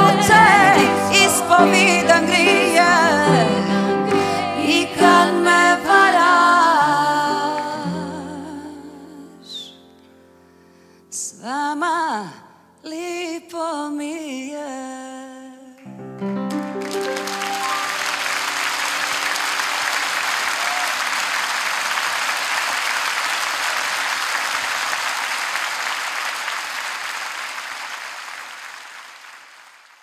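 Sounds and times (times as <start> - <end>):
audience applause: 16.5 - 30.0.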